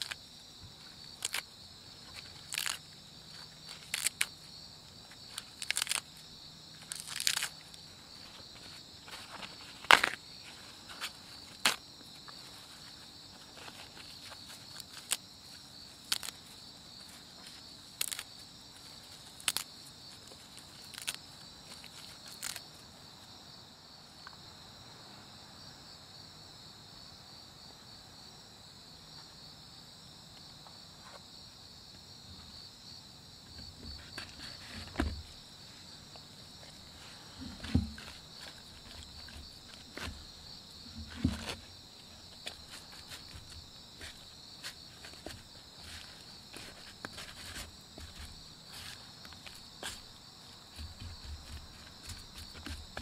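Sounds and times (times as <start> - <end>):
crickets chirping: 0.0 - 53.0
dull knocks: 37.4 - 38.2.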